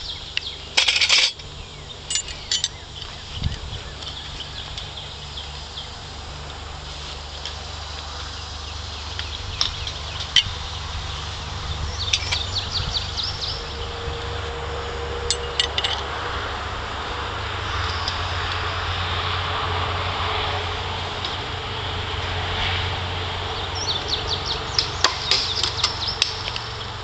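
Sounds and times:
steady low hum: 0.0 - 27.0.

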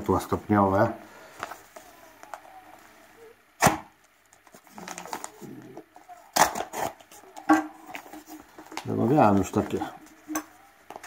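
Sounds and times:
sharp crack: 3.6 - 4.0
paper rustling: 4.0 - 10.3
knife cutting paper packet: 6.2 - 9.8.

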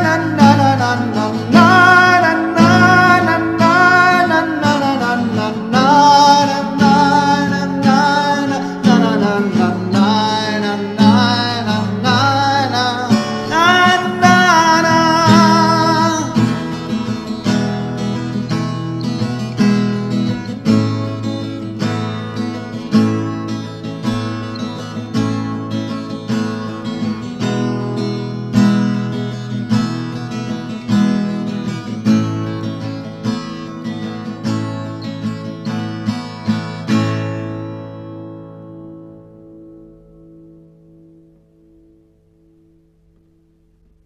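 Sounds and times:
man singing: 0.0 - 17.0
strummed acoustic guitar: 0.0 - 44.0.

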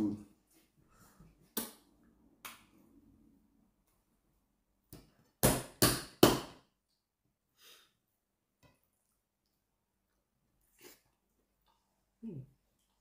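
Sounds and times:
soft eating sounds: 8.7 - 13.0.

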